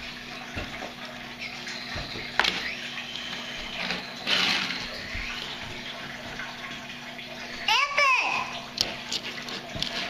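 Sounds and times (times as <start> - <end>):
toy car rolling on wooden floor: 3.8 - 4.8.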